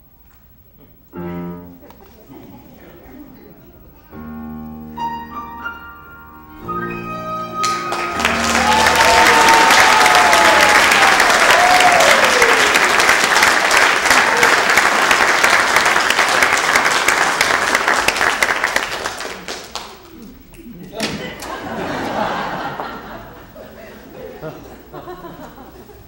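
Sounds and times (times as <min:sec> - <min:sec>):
piano flute and strings playing: 0:01.1 - 0:01.9, 0:04.1 - 0:12.1
audience applause: 0:07.5 - 0:20.3, 0:21.4 - 0:25.7
audience cheering: 0:07.6 - 0:19.6.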